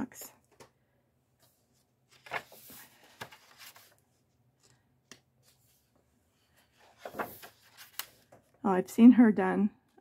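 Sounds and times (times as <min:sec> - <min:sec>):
paper page rustling: 0:01.4 - 0:08.5
paper flap: 0:02.1 - 0:04.0, 0:06.8 - 0:08.2.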